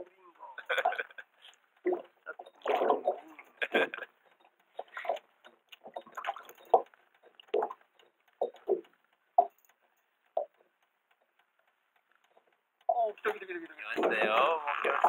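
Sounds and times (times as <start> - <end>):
water lapping against boat hull: 4.7 - 9.5.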